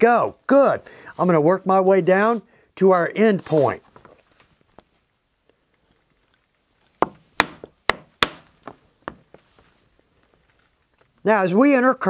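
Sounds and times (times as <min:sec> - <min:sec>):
mallet striking chisel through leather: 0:07.0 - 0:09.2.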